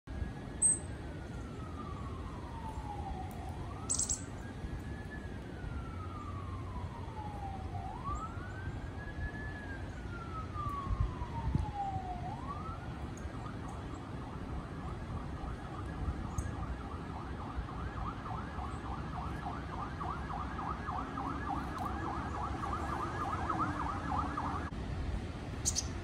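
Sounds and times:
distant siren wailing: 0:00.1 - 0:24.9, 0:25.6 - 0:26.0
high bird chirps: 0:00.6 - 0:00.8, 0:03.8 - 0:04.3, 0:25.6 - 0:26.0.

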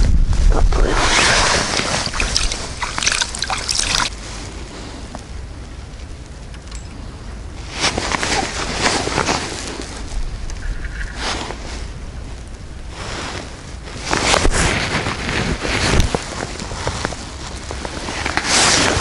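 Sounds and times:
hands splashing in water: 0:00.9 - 0:04.1.

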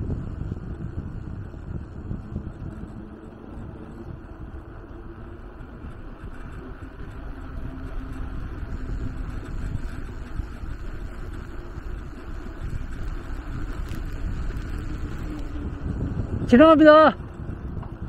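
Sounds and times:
wind on microphone: 0:00.0 - 0:18.0
tyre rumble on asphalt: 0:08.2 - 0:16.5.

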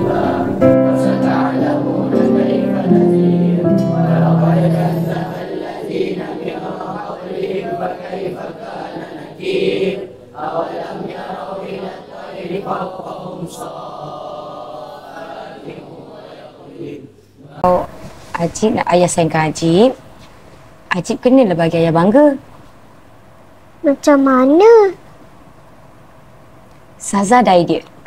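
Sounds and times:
music score with choir singing: 0:00.0 - 0:17.7.

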